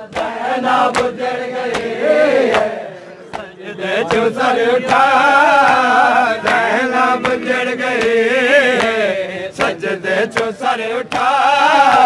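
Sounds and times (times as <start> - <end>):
hands slapping bare chests: 0.0 - 3.5, 4.9 - 7.4
crowd of men chanting: 0.0 - 12.0.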